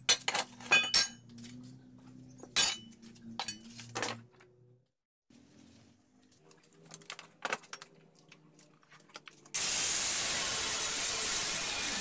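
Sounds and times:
angle grinder cutting steel: 9.6 - 12.0.

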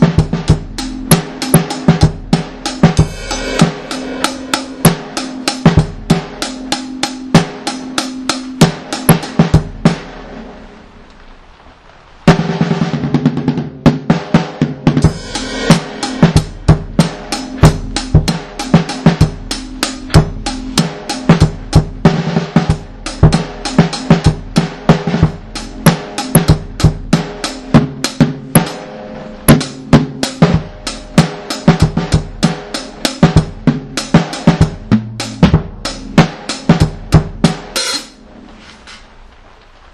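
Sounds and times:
reggae dub music: 2.6 - 7.3.

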